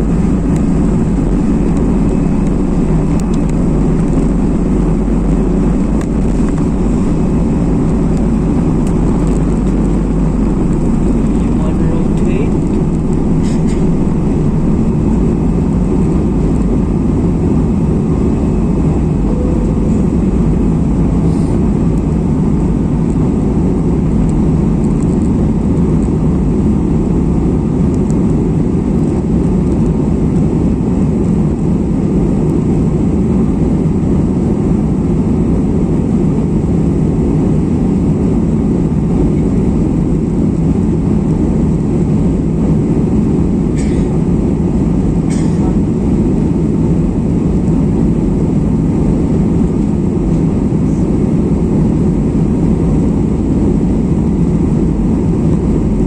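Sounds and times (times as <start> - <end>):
rushing airflow: 0.0 - 27.8
jet engines cabin roar: 0.0 - 56.0.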